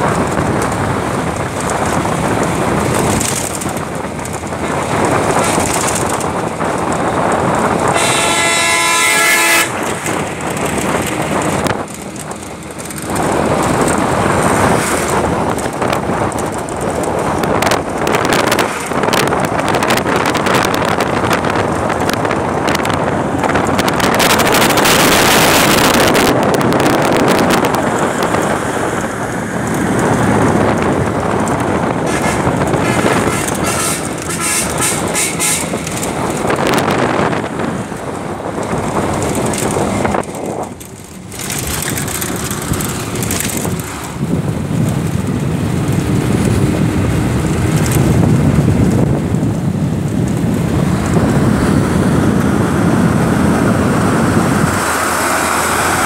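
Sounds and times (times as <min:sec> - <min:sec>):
vehicle wind and road noise: 0:00.0 - 0:56.0
vehicle horn: 0:07.8 - 0:09.9, 0:32.1 - 0:35.8.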